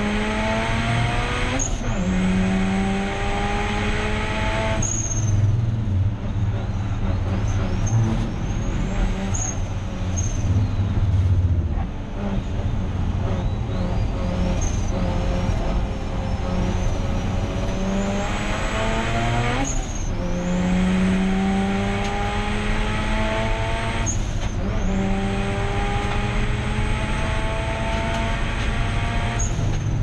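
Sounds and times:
race car engine pulling hard: 0:00.0 - 0:30.0
short high squeaks: 0:04.8 - 0:05.5, 0:07.4 - 0:11.2, 0:13.4 - 0:15.1.

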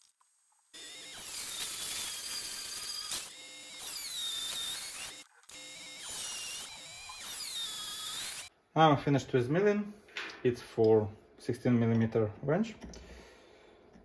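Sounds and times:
milling machine cutting metal: 0:00.8 - 0:08.5.

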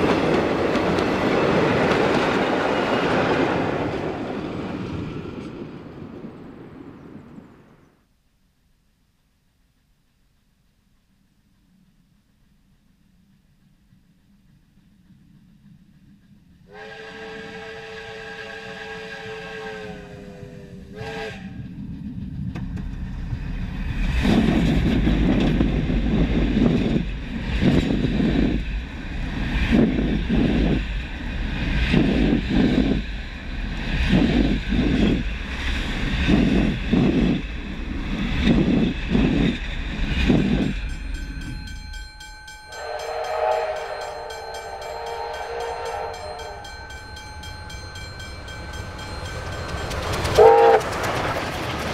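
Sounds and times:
train rumbling overhead: 0:00.0 - 0:08.0, 0:11.7 - 0:51.9
steam whistle blast: 0:16.7 - 0:21.6, 0:42.7 - 0:46.8, 0:50.4 - 0:50.9.

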